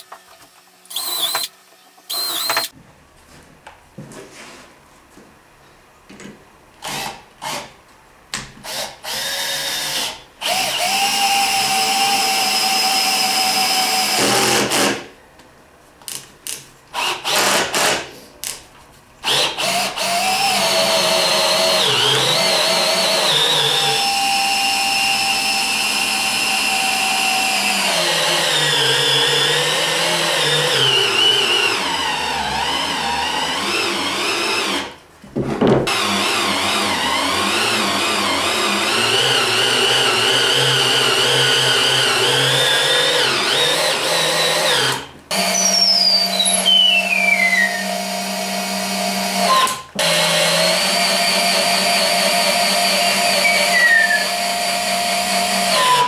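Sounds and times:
cordless drill whining: 0.9s - 1.5s, 2.1s - 2.7s, 8.6s - 14.9s, 19.2s - 35.0s, 35.9s - 56.0s
drill boring into wood: 0.9s - 1.5s, 2.1s - 2.7s, 8.6s - 15.0s, 17.0s - 18.0s, 19.2s - 35.0s, 35.9s - 56.0s.

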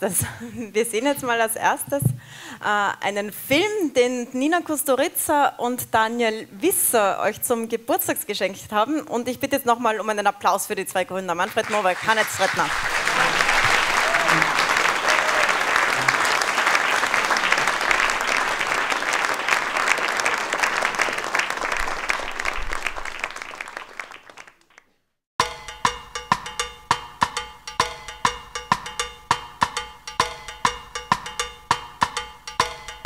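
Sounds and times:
audience applauding: 11.5s - 24.9s
ringing pitched percussion: 25.4s - 33.0s.

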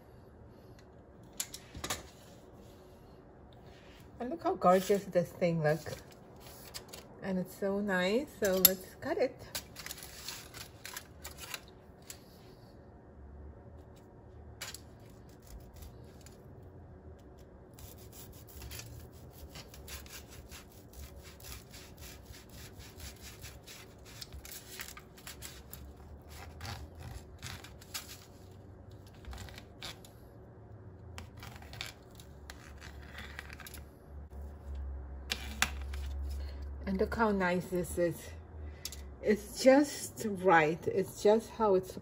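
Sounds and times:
knife sawing through baked cake: 17.8s - 27.8s.

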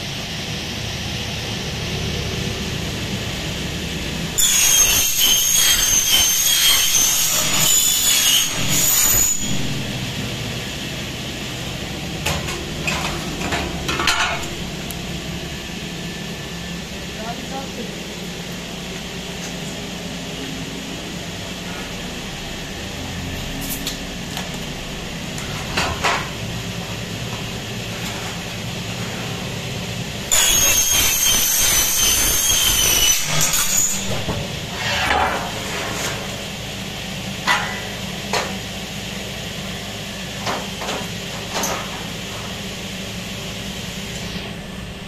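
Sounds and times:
power saw screeching through metal: 4.3s - 10.2s, 30.3s - 35.9s
steady hum: 9.4s - 30.4s, 34.0s - 45.0s.

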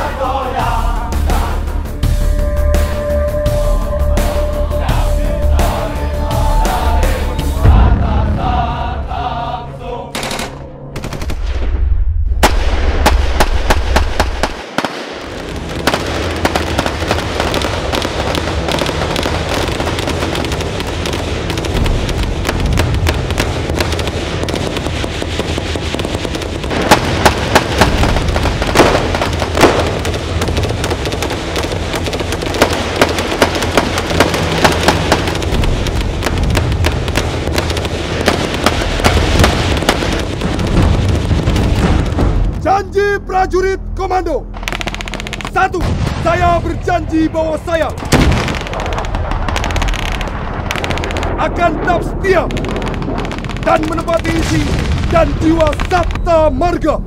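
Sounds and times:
background music: 0.0s - 57.0s
automatic gunfire: 23.4s - 35.6s.

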